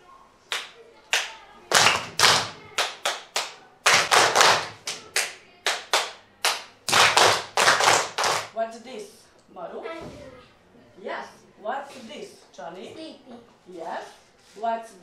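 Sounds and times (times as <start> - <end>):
children clapping rhythms: 0.5 - 8.6
teacher clapping: 0.5 - 8.6.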